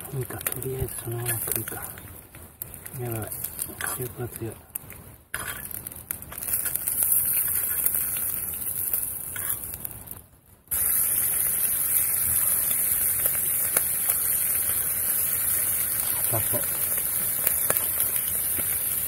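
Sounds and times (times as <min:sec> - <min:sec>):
meat sizzling on grill plate: 0:05.4 - 0:09.9, 0:10.7 - 0:19.0.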